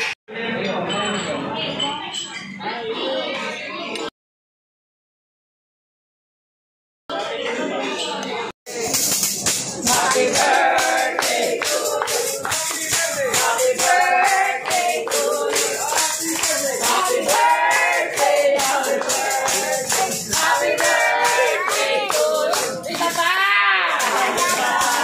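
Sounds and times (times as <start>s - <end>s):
tambourine shaking: 8.7s - 23.3s, 24.0s - 25.0s
group singing birthday song: 8.9s - 23.4s, 24.0s - 25.0s.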